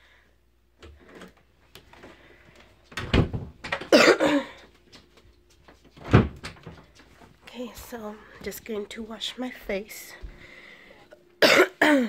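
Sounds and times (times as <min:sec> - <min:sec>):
door thump: 0:03.0 - 0:03.8, 0:06.0 - 0:06.5.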